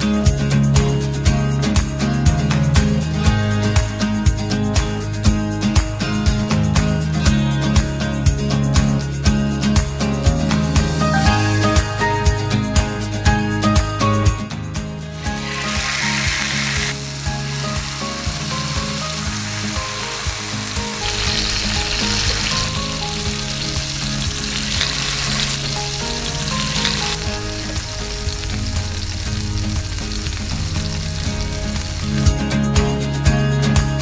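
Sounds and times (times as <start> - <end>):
soft background music: 0.0 - 34.0
chicken sizzling in hot oil: 10.5 - 11.9, 15.0 - 32.8.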